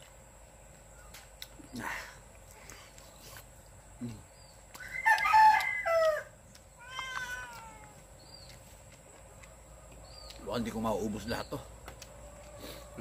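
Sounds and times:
rooster crowing: 0:04.8 - 0:07.5.

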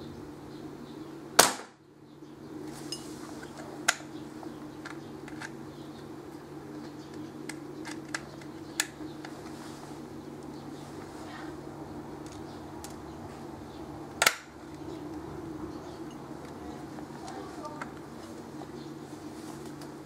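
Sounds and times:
low steady hum: 0:00.0 - 0:20.0
airgun shot: 0:01.4 - 0:01.8.

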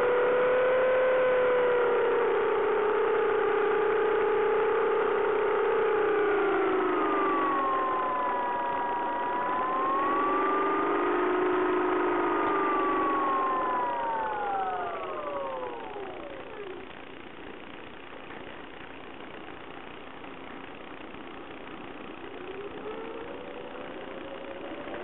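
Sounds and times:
model plane motor humming: 0:00.0 - 0:17.0, 0:22.0 - 0:25.0.

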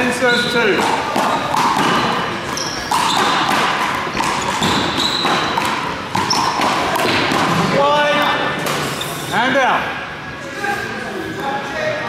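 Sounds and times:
trainers squeaking on floor: 0:00.1 - 0:06.9.

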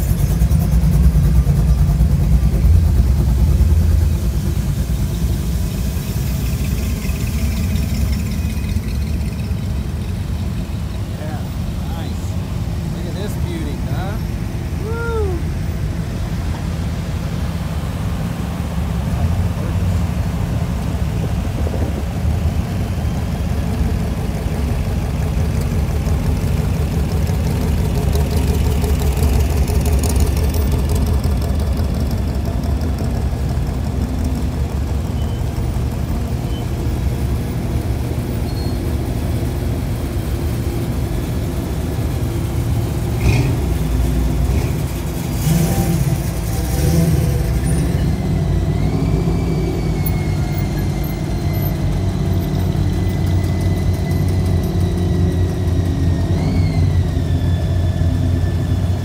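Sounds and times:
car engine running: 0:00.0 - 0:14.7, 0:15.6 - 0:38.4.

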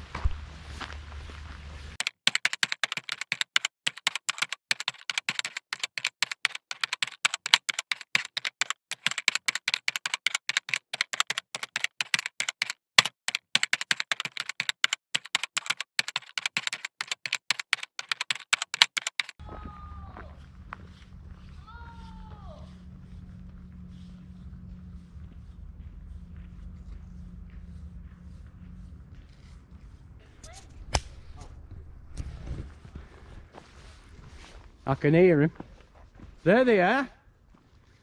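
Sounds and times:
sped up footsteps on gravel: 0:00.0 - 0:02.0, 0:19.4 - 0:38.0.

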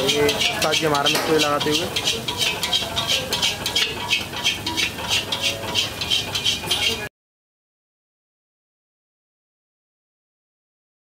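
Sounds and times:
metal spatula scraping a wok: 0:00.0 - 0:07.1.

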